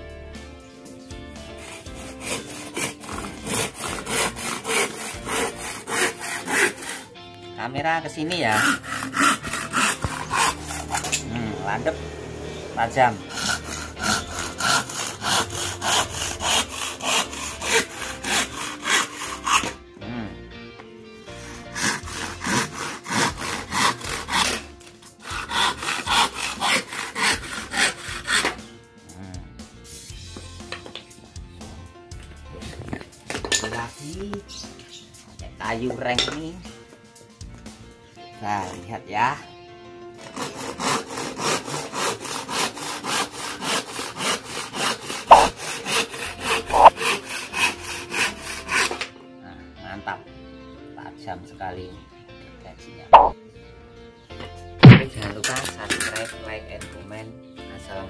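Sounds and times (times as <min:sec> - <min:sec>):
hand saw cutting wood: 0:01.3 - 0:07.2, 0:08.1 - 0:19.8, 0:21.2 - 0:28.7, 0:32.6 - 0:33.9, 0:38.4 - 0:39.4, 0:40.2 - 0:49.1, 0:53.2 - 0:53.4, 0:54.8 - 0:57.0.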